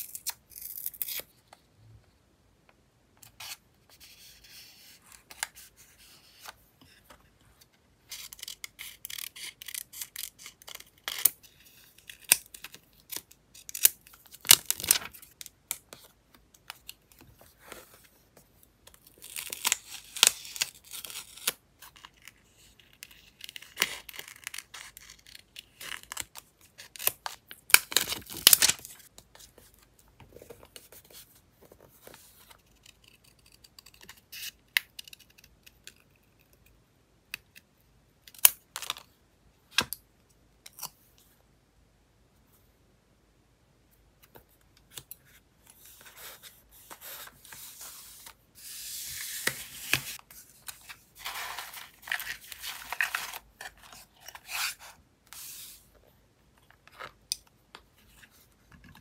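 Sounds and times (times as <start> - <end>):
paper and stickers rustling: 14.4 - 15.4, 45.7 - 55.8.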